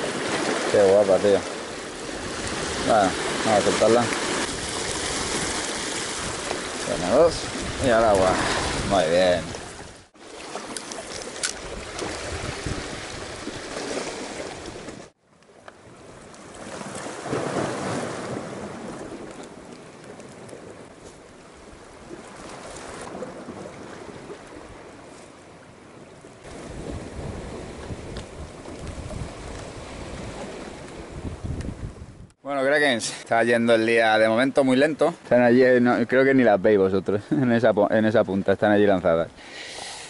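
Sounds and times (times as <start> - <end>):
waves washing against rocks: 0.0 - 15.2, 16.3 - 20.9
wind on microphone: 1.8 - 10.1, 11.1 - 15.1, 26.4 - 32.4.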